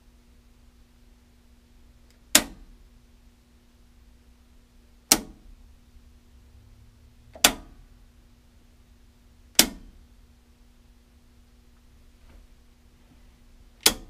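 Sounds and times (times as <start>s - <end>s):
faint electrical hum: 0.0s - 14.0s
circuit breakers clicking off: 2.0s - 2.8s, 5.0s - 5.8s, 7.2s - 8.0s, 9.4s - 10.1s, 13.7s - 14.0s.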